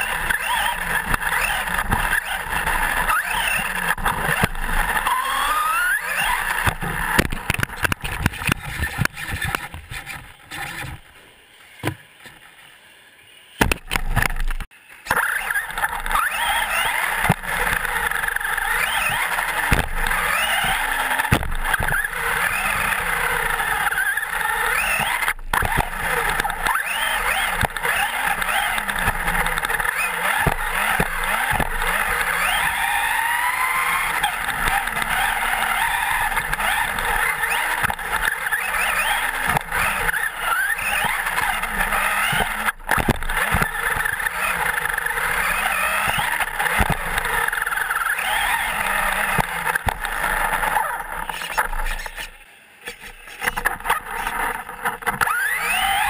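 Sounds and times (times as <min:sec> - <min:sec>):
electric motor whine: 0:00.0 - 0:12.3, 0:13.3 - 0:52.4, 0:53.2 - 0:56.0
chassis knocks on bumps: 0:06.6 - 0:10.0, 0:13.6 - 0:14.6, 0:18.8 - 0:22.6, 0:26.6 - 0:33.1, 0:37.5 - 0:44.3, 0:45.5 - 0:47.4.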